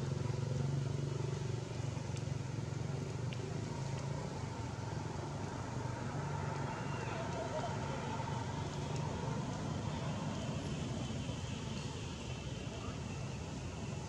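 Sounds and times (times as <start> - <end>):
low engine hum: 0.0 - 14.0
faint ticks: 1.2 - 4.7, 8.8 - 9.7.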